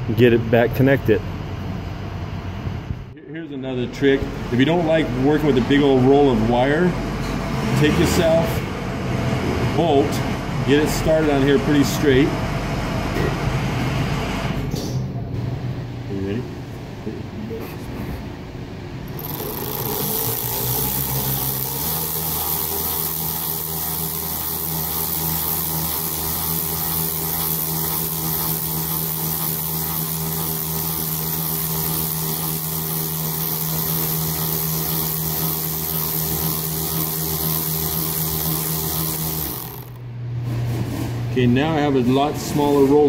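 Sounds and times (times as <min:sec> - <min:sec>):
cordless drill motor whine: 0:19.1 - 0:40.0.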